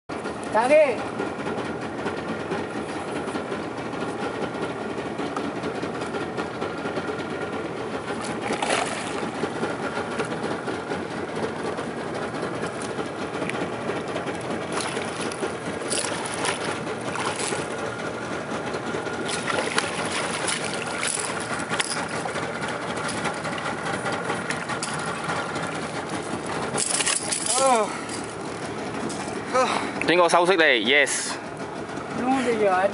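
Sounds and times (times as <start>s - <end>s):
steady mechanical running: 0.1s - 32.9s
fish splashing at water surface: 8.1s - 9.5s, 14.6s - 17.9s, 19.2s - 23.6s.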